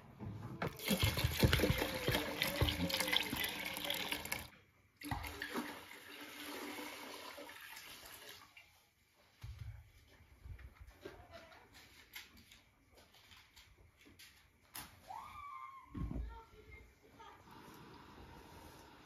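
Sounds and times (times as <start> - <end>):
water pouring and splashing into pot: 0.7 - 8.9.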